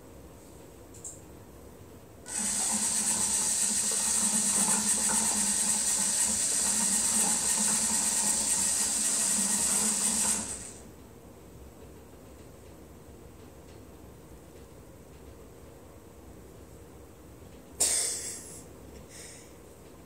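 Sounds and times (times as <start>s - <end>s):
small electric motor whirring: 2.3s - 10.8s.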